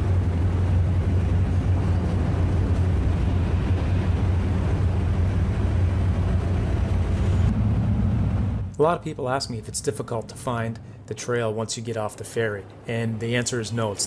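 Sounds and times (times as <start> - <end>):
vehicle engines droning: 0.0 - 11.2.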